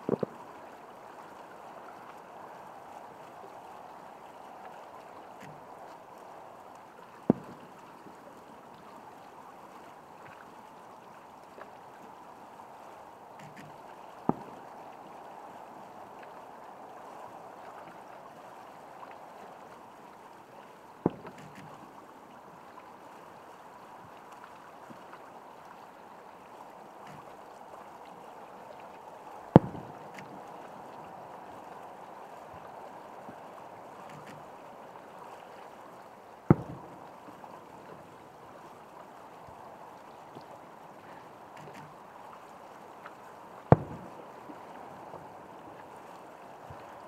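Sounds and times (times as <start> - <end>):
faint pop: 0.0 - 0.4, 7.3 - 7.6, 14.3 - 14.6, 29.6 - 30.4, 36.5 - 36.9, 43.7 - 44.1
steady background hiss: 0.0 - 47.0.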